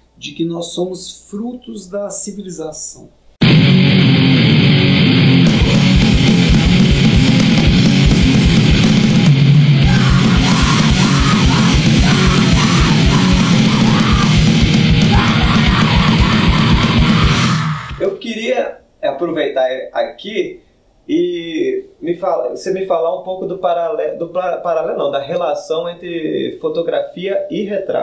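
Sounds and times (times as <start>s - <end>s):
heavy rock music: 3.4s - 18.0s.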